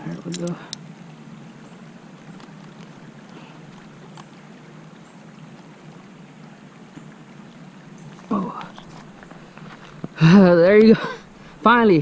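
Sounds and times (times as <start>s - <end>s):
creek running over gravel: 0.0s - 12.0s
faint clicks: 2.3s - 4.4s.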